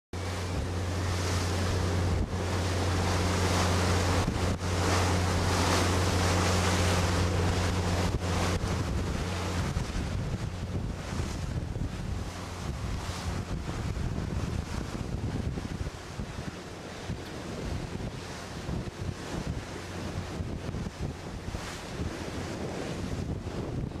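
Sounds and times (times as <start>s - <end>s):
ship engines droning: 0.2s - 14.1s
sea water rushing along hull: 0.2s - 24.0s
wind buffeting microphone: 0.2s - 24.0s.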